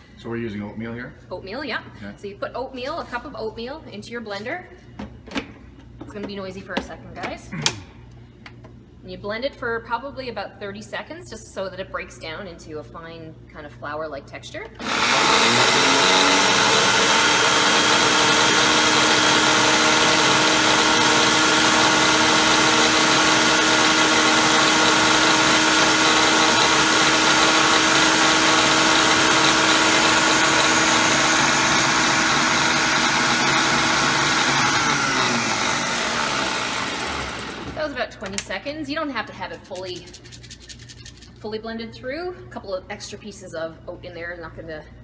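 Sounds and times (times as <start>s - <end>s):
blender motor whirring: 14.8s - 37.9s.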